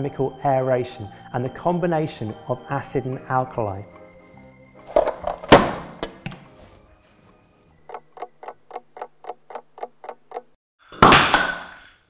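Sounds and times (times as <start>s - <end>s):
wall clock ticking quickly: 7.8s - 10.6s.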